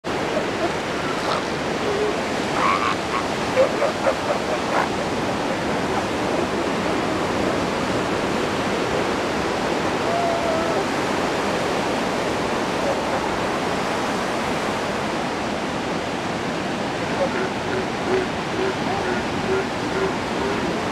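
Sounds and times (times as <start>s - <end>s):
surf washing ashore: 0.0s - 20.9s
elephant seal threat call: 17.2s - 20.8s.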